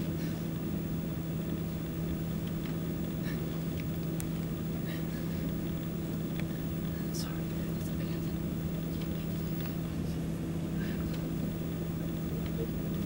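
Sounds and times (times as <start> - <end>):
steady low hum: 0.0 - 13.0
faint ticks and rustles: 1.4 - 11.4.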